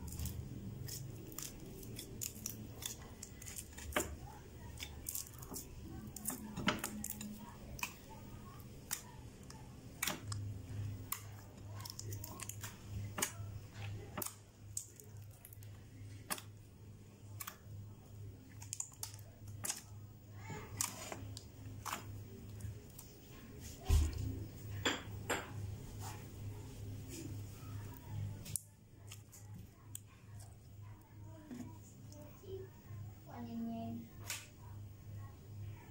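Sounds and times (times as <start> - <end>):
slime squelching: 0.0 - 24.3.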